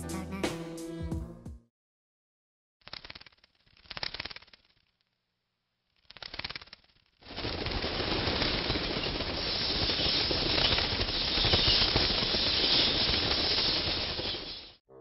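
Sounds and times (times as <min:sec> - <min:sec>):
bat wings fluttering: 0:02.8 - 0:05.2, 0:05.8 - 0:14.8.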